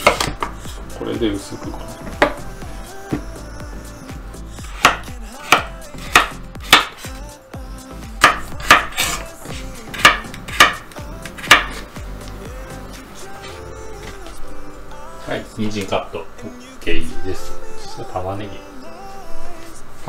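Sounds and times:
knife chopping on wooden board: 0:00.0 - 0:00.6, 0:04.6 - 0:07.0, 0:08.2 - 0:09.2, 0:09.9 - 0:11.8.

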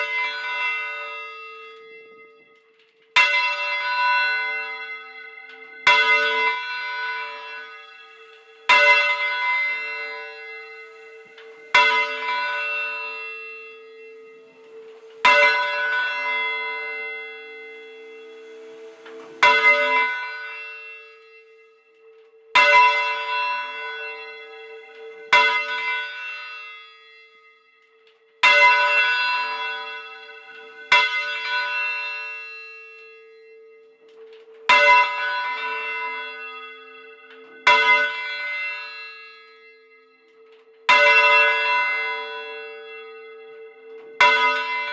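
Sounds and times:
church bell ringing: 0:00.0 - 0:44.9
low hum note: 0:07.9 - 0:22.5.

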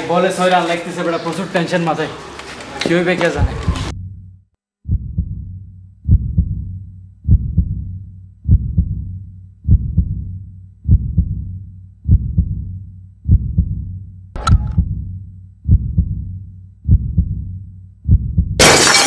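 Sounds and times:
heartbeat double thump: 0:04.8 - 0:13.9, 0:15.6 - 0:18.6.

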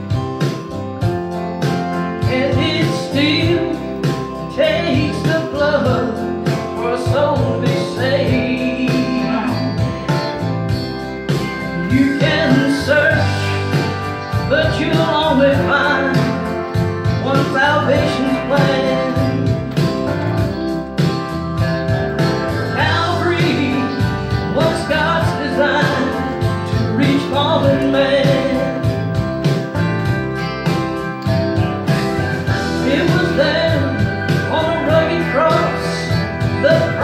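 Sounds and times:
guitar accompaniment: 0:00.0 - 0:37.0
woman singing gospel song: 0:02.2 - 0:09.9, 0:11.8 - 0:13.7, 0:14.4 - 0:16.5, 0:17.2 - 0:19.8, 0:22.7 - 0:29.0, 0:32.8 - 0:37.0.

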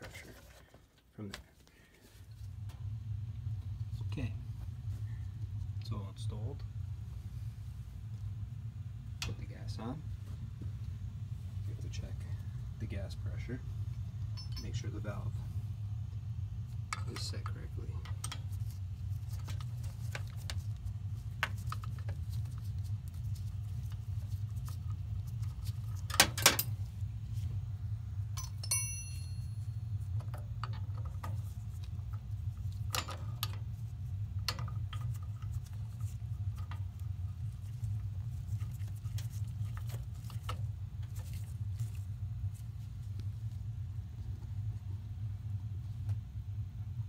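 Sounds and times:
steady low hum: 0:00.0 - 0:47.0
gloved hands handling wires: 0:16.7 - 0:27.6, 0:28.4 - 0:44.7.

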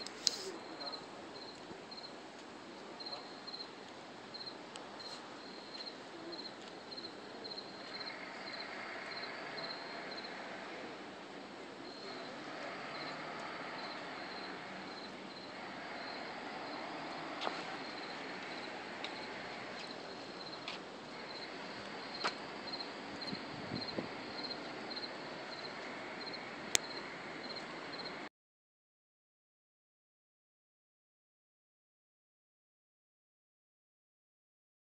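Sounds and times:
background hiss: 0:00.0 - 0:28.3
cricket chirping: 0:00.3 - 0:02.2, 0:03.0 - 0:03.7, 0:04.3 - 0:10.6, 0:11.8 - 0:28.2.

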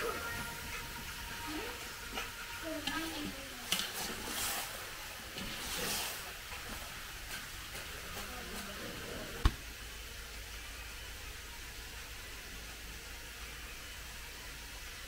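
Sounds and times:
faint voices: 0:00.0 - 0:04.7, 0:07.7 - 0:09.6
water splashing and draining: 0:00.0 - 0:15.0.

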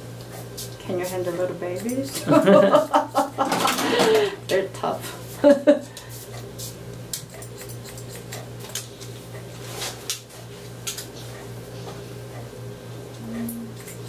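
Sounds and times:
scissors snipping hair: 0:01.7 - 0:02.2, 0:07.1 - 0:09.1, 0:10.1 - 0:11.2, 0:13.7 - 0:14.0.

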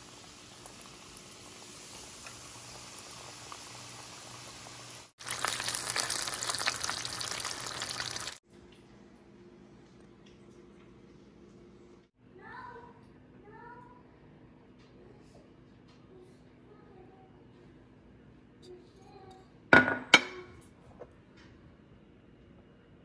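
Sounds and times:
food deep-frying in oil: 0:00.0 - 0:08.4
oil popping: 0:05.2 - 0:08.4.

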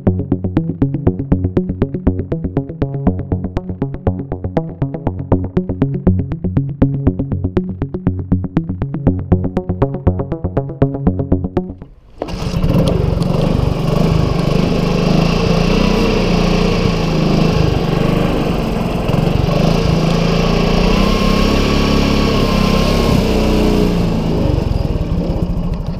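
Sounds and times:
scooter engine running: 0:11.8 - 0:25.9.

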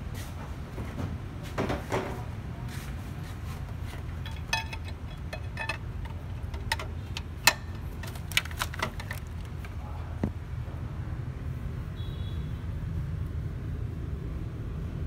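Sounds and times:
sharp metallic clicks: 0:04.0 - 0:09.8.

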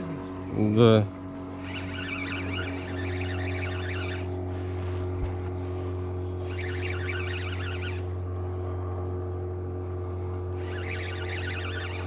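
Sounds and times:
boat motor humming: 0:00.0 - 0:12.0
warbling high-pitched sound: 0:01.6 - 0:04.3, 0:06.4 - 0:08.1, 0:10.6 - 0:12.0.

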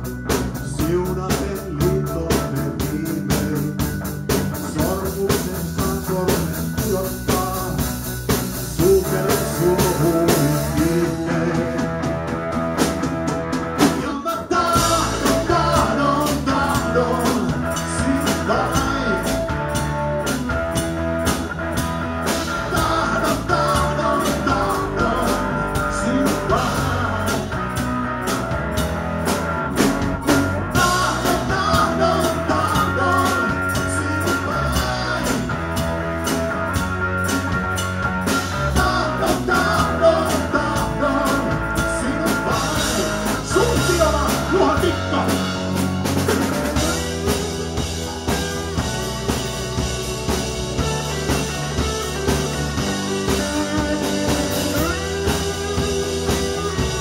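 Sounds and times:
bass guitar: 0:00.0 - 0:57.0
drum kit beat: 0:00.0 - 0:57.0
electric guitar: 0:00.0 - 0:57.0.

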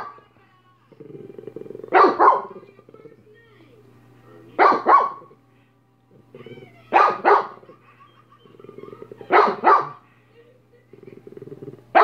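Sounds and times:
dog barking: 0:01.8 - 0:02.6, 0:04.6 - 0:05.4, 0:06.9 - 0:07.7, 0:09.2 - 0:10.0.

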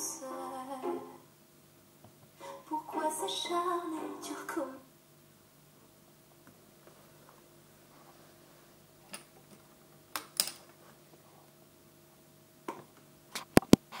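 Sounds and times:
faint electrical hum: 0:00.0 - 0:14.0.

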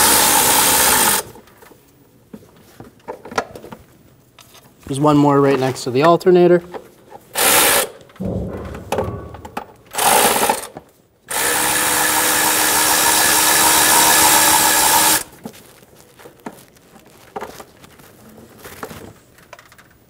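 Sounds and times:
power tool spinning: 0:12.1 - 0:15.2
clicks and rattles of parts: 0:18.6 - 0:20.0.

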